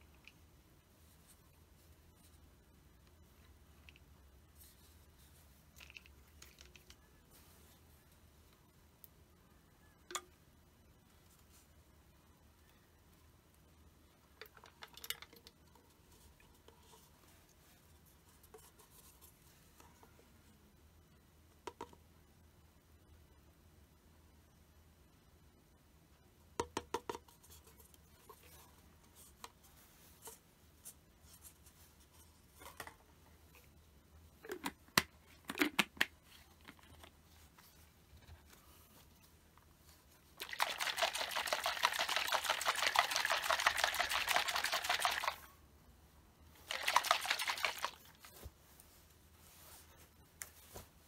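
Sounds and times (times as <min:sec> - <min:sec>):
liquid sloshing in shaken bottle: 0:40.4 - 0:45.4, 0:46.6 - 0:48.2.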